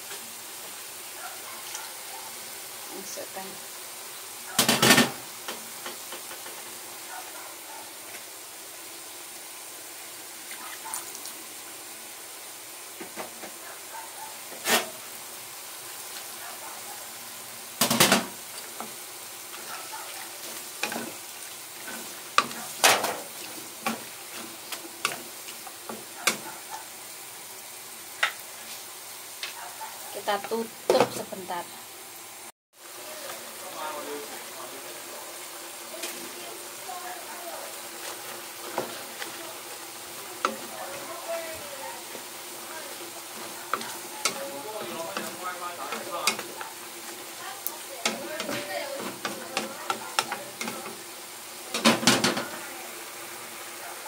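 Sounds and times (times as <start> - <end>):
food sizzling in a wok: 0.0 - 54.0
spatula scraping and knocking pan: 14.5 - 15.0, 17.8 - 26.8, 38.0 - 39.6, 40.2 - 51.1.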